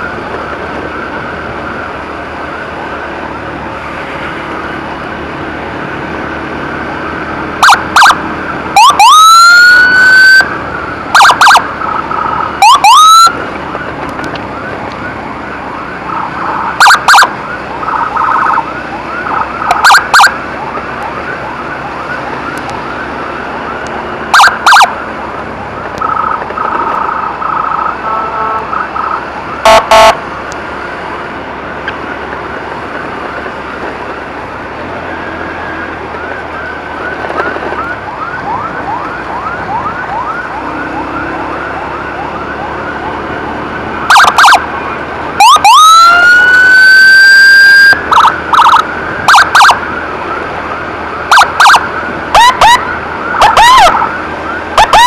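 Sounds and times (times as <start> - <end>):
riding noise: 0.0 - 55.0
siren blasts: 6.8 - 30.2, 35.1 - 55.0
siren whoops: 7.6 - 13.9, 14.5 - 25.0, 26.0 - 30.2, 35.7 - 50.5, 51.2 - 55.0.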